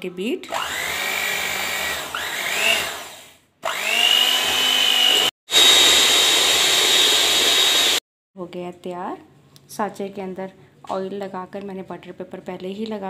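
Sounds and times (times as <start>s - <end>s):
hand mixer motor whine: 0.5s - 8.0s.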